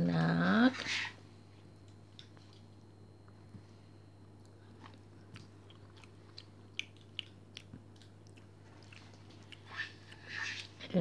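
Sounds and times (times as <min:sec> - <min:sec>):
mouth smacks while eating: 0:04.4 - 0:10.8.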